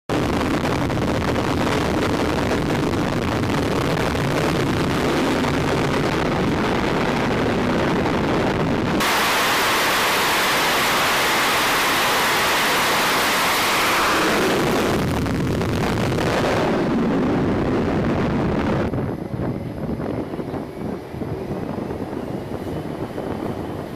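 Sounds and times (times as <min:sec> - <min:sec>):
jet engines low rumble: 0:00.1 - 0:23.9
jet at full power hissing: 0:09.0 - 0:23.9.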